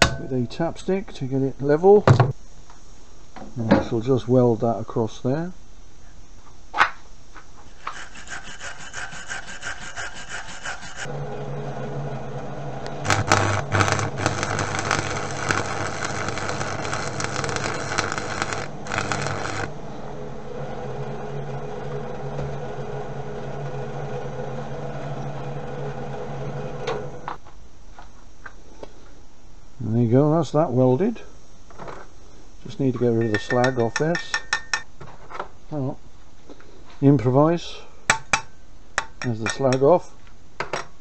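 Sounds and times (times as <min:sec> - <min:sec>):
electrical hum: 0:00.0 - 0:40.6
rapid scratching: 0:07.8 - 0:11.1, 0:13.0 - 0:19.7
welding arc crackling: 0:12.8 - 0:19.8.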